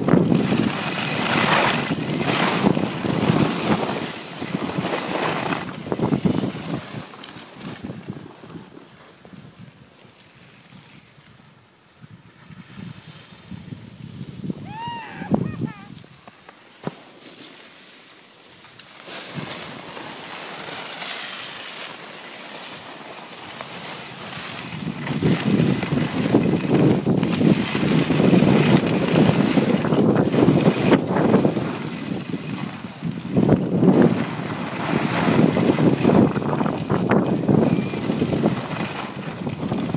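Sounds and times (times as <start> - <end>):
wind rushing over microphone: 0.0 - 9.9, 10.7 - 16.2, 24.2 - 39.9
hiss of sliding on snow: 0.3 - 39.4.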